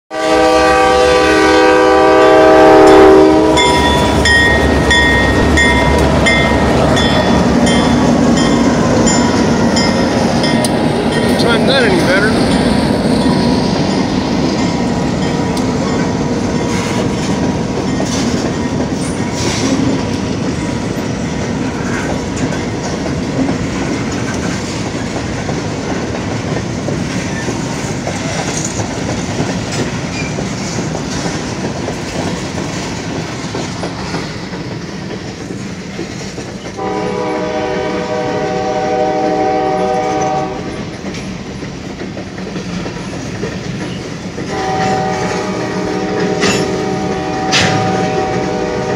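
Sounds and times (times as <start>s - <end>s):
locomotive horn: 0.1s - 7.0s, 36.8s - 40.8s, 44.5s - 48.9s
train wheels rumbling on rail: 0.1s - 48.9s.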